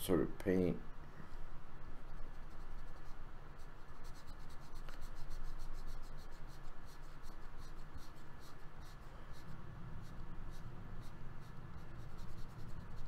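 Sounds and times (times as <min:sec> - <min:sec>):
stylus scribbling on drawing tablet: 0:01.9 - 0:13.0.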